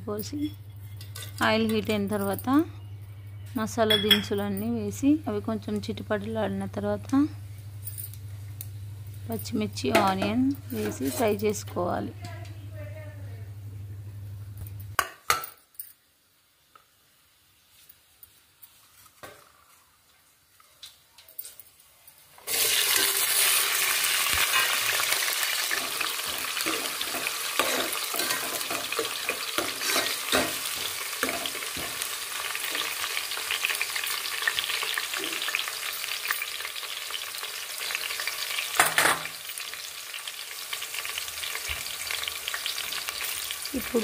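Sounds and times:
spoon scraping and clinking pot: 0.4 - 2.4, 3.9 - 4.4, 9.9 - 11.6, 24.4 - 32.1
onions sizzling in hot oil: 22.4 - 44.0.

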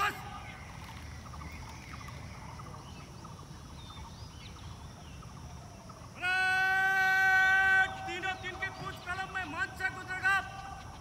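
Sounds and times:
man's command over loudspeaker: 0.0 - 0.4, 6.2 - 10.8
faint bird chirps: 0.0 - 6.4.

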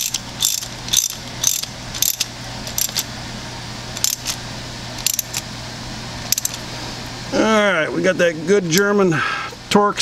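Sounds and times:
ratchet wrench clicking: 0.0 - 3.0, 4.0 - 4.4, 5.0 - 5.4, 6.3 - 6.6.

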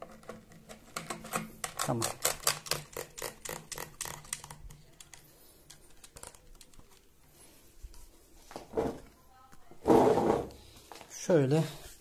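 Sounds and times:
shotgun handling clicks and rattles: 0.0 - 7.0.

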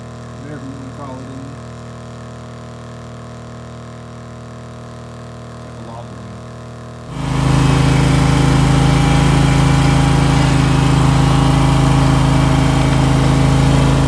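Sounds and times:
electric pump humming and hissing: 0.0 - 14.0.

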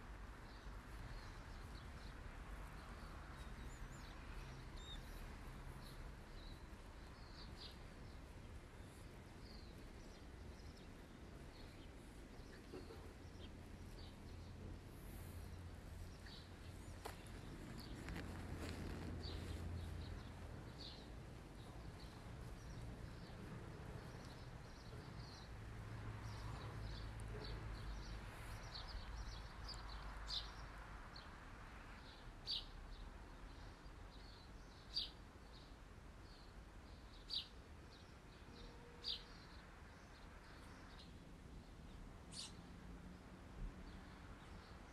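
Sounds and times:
birds chirping: 0.5 - 30.7.

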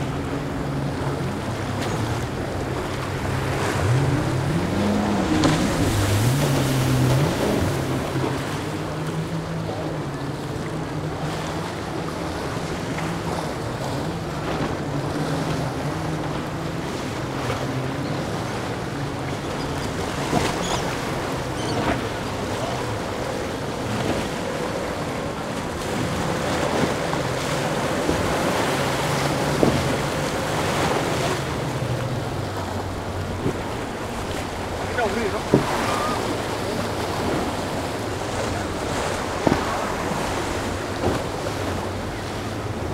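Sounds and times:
boat engines humming: 0.0 - 42.9
waves and spray on hull: 0.0 - 42.9.

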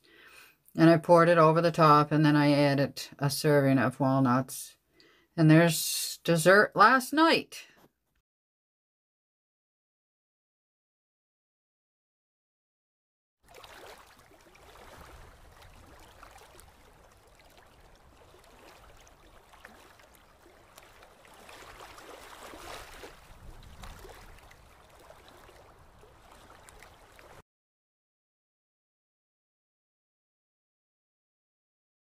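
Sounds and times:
small waves washing onto sand: 13.4 - 27.4.

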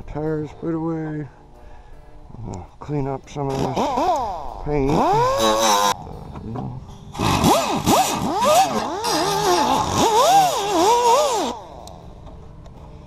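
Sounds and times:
die grinder whine and grinding: 7.1 - 11.7.

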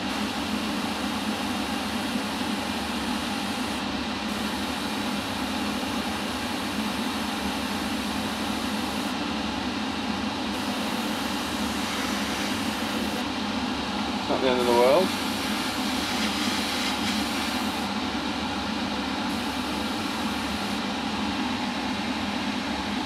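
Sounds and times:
mechanical hum: 0.0 - 23.0
airbrush hissing: 10.6 - 13.2, 14.6 - 17.9.

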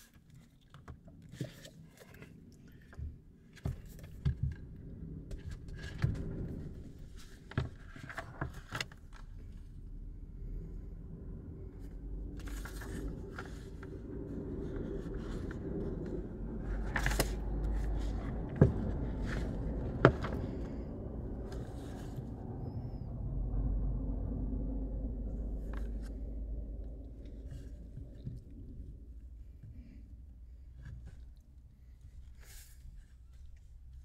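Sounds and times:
steady low rumble: 1.8 - 34.0
book pages rustling: 12.3 - 23.0, 25.4 - 26.4.

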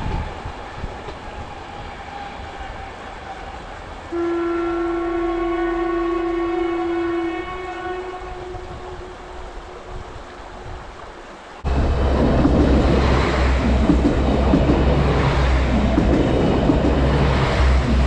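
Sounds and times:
passing train: 0.0 - 18.0
train horn blast: 2.2 - 10.0.

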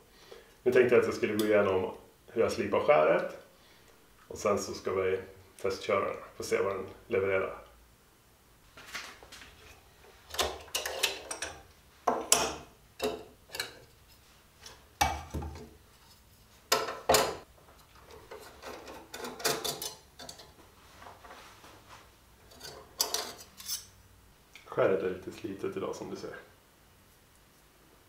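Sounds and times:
metal plane parts clicking and clunking: 16.7 - 20.6, 22.5 - 23.9.

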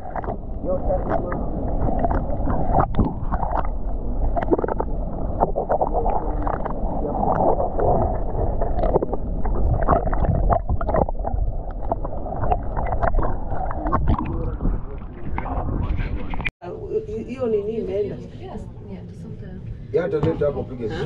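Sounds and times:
underwater knocks and crackles: 0.0 - 16.5
underwater rush of water: 0.0 - 16.5.

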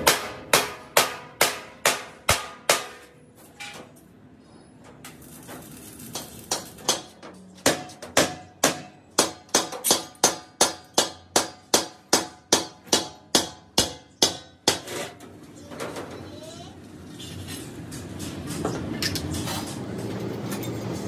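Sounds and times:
hammer striking steel tank: 0.0 - 3.2, 6.2 - 15.2.

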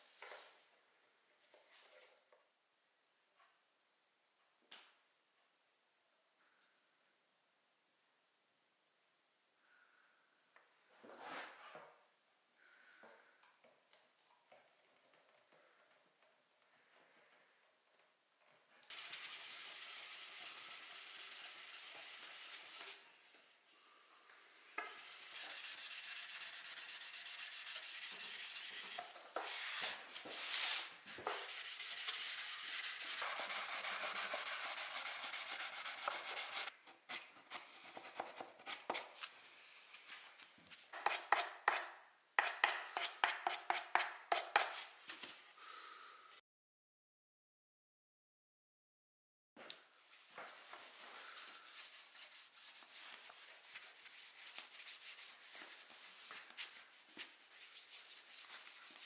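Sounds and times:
sandpaper rubbing wood: 18.9 - 23.0, 24.8 - 36.7, 50.5 - 59.0.

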